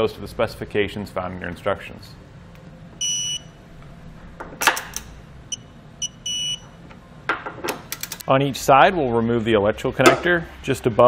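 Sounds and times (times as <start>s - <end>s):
high-pitched electronic beeping: 3.0s - 3.6s, 5.4s - 6.7s.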